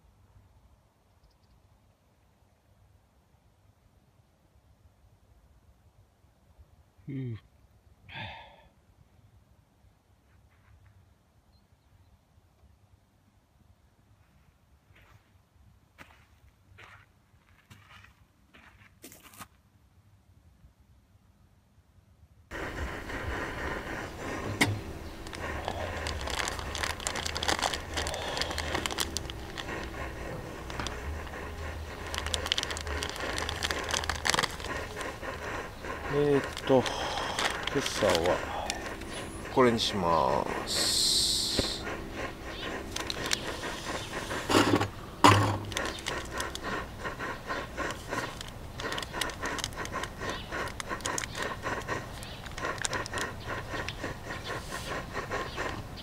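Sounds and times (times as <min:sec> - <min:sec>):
stove burning with low rumble: 0:22.5 - 0:56.0
metal mug set on table: 0:44.4 - 0:45.7.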